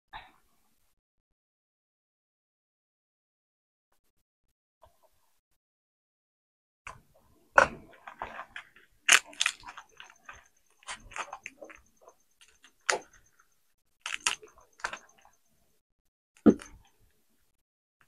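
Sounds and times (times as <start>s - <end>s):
brittle pod shells snapping: 9.1s - 10.1s, 14.0s - 14.5s.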